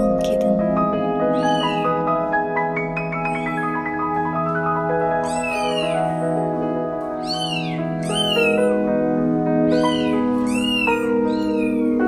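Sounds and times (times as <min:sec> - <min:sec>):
background music: 0:00.0 - 0:12.0
kitten mewing: 0:01.3 - 0:02.0, 0:05.2 - 0:06.3, 0:07.2 - 0:08.8, 0:09.7 - 0:12.0.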